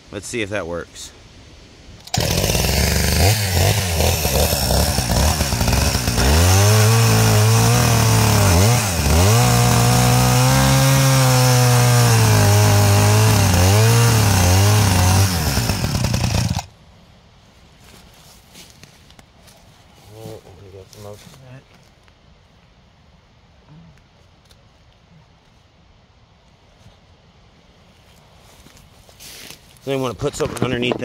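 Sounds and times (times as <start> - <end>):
chainsaw cutting stump: 2.0 - 16.7.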